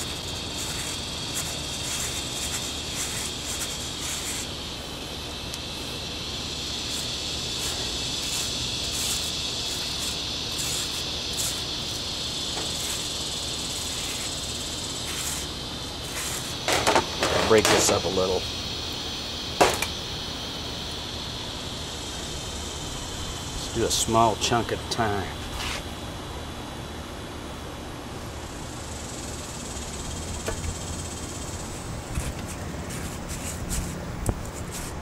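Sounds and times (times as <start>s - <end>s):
powder rasping through mesh strainer: 0.0s - 4.6s, 6.5s - 18.4s, 32.2s - 35.0s
high insect drone: 0.0s - 35.0s.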